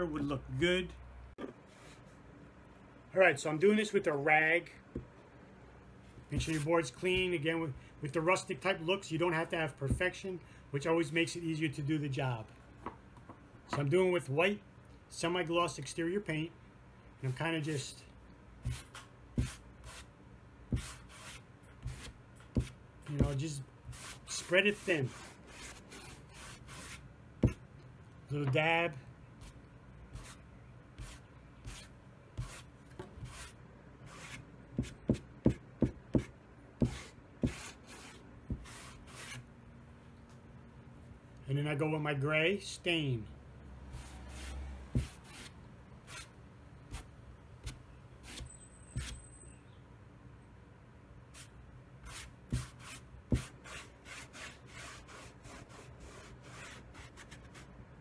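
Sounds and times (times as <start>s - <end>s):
rag rubbing on wood board: 36.2s - 39.4s.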